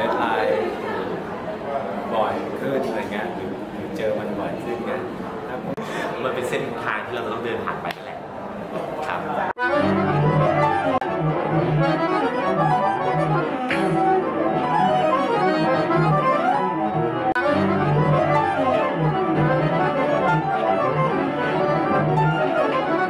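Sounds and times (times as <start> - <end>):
accordion playing: 9.6 - 23.0
low bass notes: 9.6 - 23.0.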